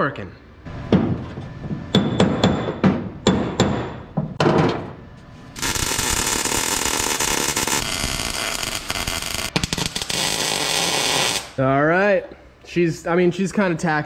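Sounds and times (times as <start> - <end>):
welder arc crackling: 5.6 - 11.6.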